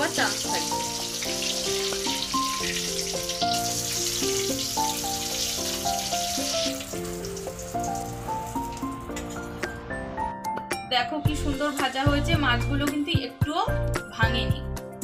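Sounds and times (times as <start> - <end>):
fish sizzling in hot oil: 0.0 - 9.6
background music: 0.0 - 15.0.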